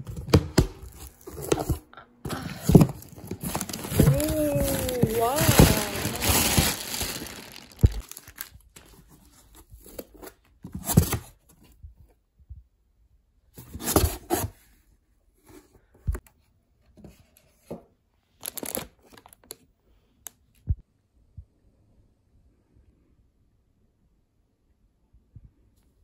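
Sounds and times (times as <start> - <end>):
plastic bags rustling: 0.8 - 9.1, 18.4 - 19.4.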